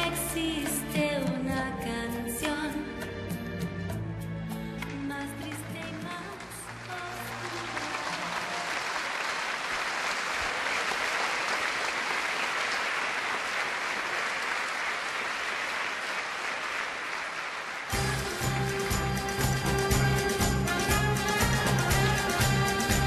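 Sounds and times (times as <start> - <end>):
music: 0.0 - 9.4, 17.9 - 23.0
audience applauding: 4.8 - 23.0.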